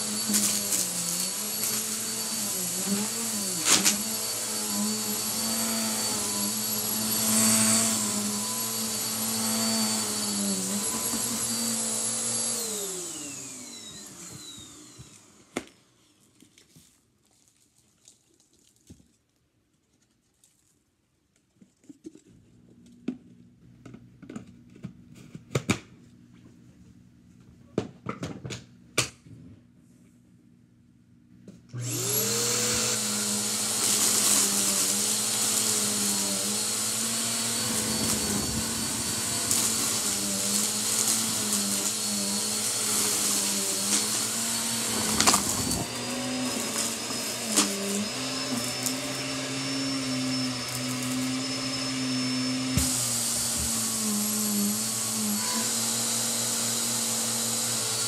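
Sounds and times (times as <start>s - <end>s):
vacuum cleaner running: 0.0s - 15.9s, 31.7s - 58.0s.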